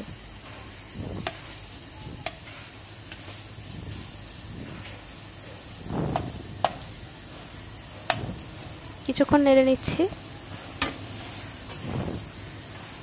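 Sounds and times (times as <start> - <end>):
onions sizzling in hot oil: 0.0 - 13.0
spoon tapping against pan: 6.1 - 6.8.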